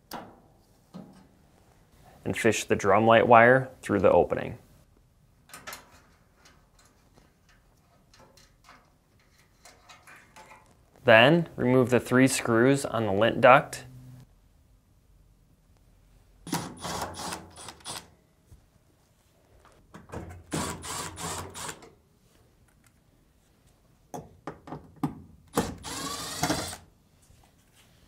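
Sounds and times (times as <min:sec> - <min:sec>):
power screwdriver motor: 0:20.6 - 0:21.8, 0:25.6 - 0:26.8.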